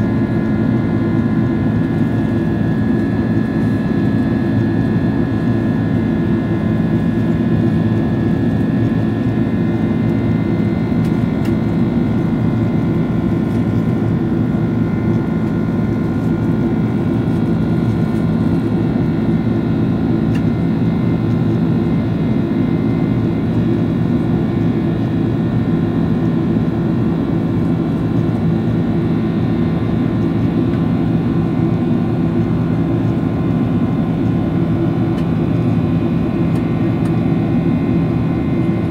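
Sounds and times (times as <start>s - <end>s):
jet engine drone: 0.0s - 38.9s.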